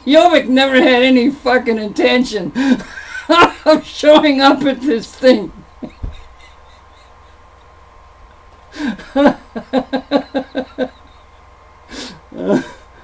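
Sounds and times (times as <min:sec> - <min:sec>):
man laughing heartily: 0:02.6 - 0:03.9, 0:05.6 - 0:07.9, 0:08.7 - 0:13.0
noisy breath: 0:08.6 - 0:09.1, 0:11.1 - 0:12.9.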